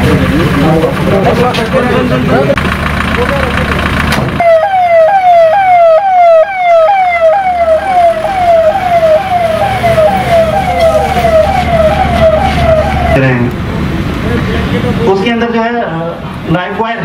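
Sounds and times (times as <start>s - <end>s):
ambulance siren yelping: 4.4s - 13.5s.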